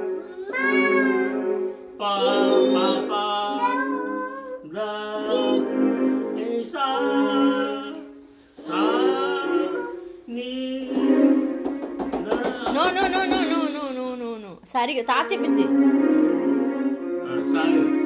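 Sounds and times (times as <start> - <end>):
electronic keyboard notes: 0.0 - 4.5, 5.2 - 10.2, 10.9 - 12.8, 15.0 - 18.0
toddler singing: 0.3 - 1.5, 2.2 - 5.7, 6.8 - 10.1
man singing: 2.0 - 11.4.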